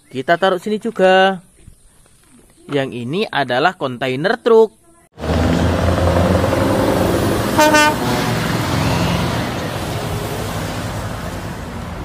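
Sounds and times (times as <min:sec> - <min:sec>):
truck horn toot: 0:05.2 - 0:10.7
truck engine running: 0:05.2 - 0:12.0.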